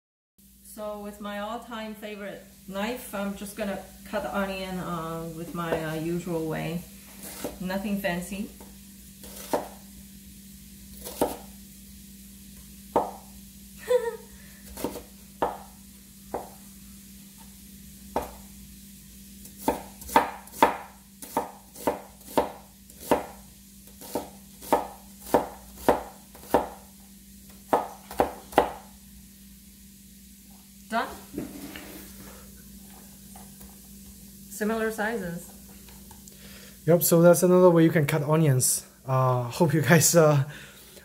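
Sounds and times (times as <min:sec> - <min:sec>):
knife chopping an onion: 0:07.2 - 0:07.7, 0:08.7 - 0:09.9, 0:10.9 - 0:11.5, 0:12.9 - 0:13.3, 0:14.6 - 0:16.6, 0:18.1 - 0:18.5, 0:19.4 - 0:26.9, 0:27.5 - 0:28.9.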